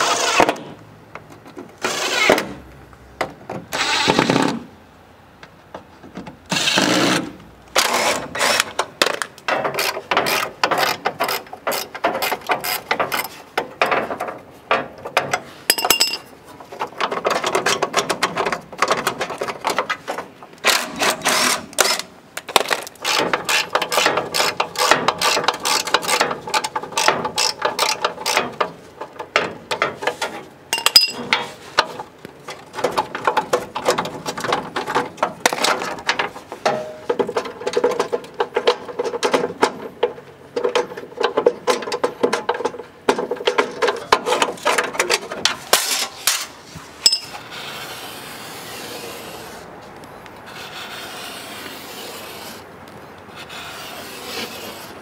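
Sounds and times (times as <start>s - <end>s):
steady rubbing: 50.4s - 52.7s, 53.3s - 55.0s.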